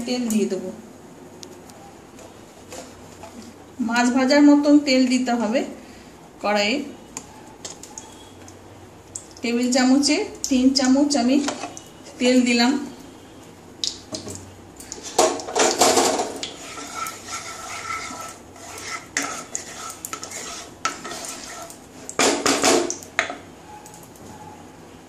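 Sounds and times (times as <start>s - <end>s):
wooden spatula scraping a pan: 2.2s - 3.4s, 16.0s - 22.8s.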